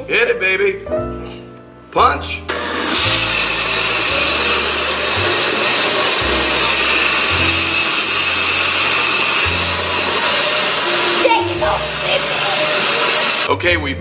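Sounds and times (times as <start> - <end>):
blender running: 2.5 - 13.5.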